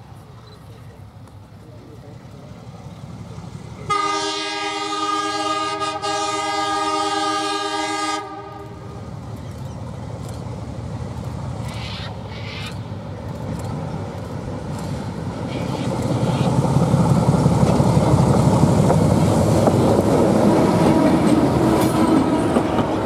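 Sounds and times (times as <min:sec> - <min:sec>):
locomotive air horn blast: 0:03.9 - 0:08.8.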